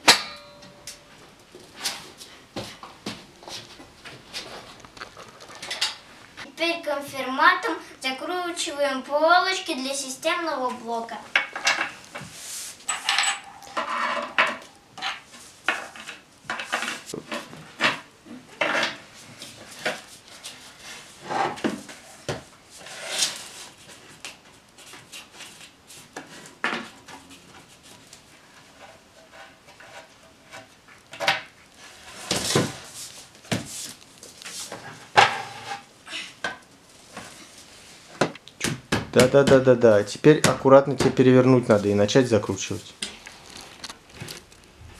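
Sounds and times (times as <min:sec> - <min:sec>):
metal screws clinking on panels: 0:12.8 - 0:15.2.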